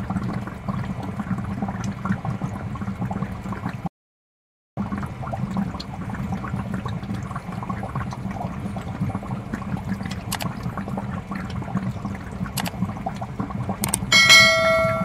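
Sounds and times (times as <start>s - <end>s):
sharp clicks: 12.6s - 12.8s, 13.8s - 14.1s.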